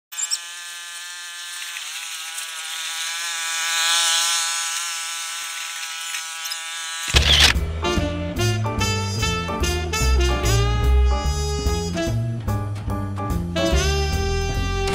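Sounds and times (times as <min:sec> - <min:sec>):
power tool motor whining: 0:00.1 - 0:07.7.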